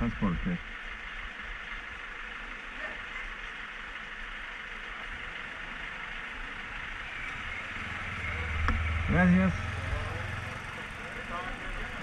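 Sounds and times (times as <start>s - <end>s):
motorcycle engine idling: 7.4s - 12.0s.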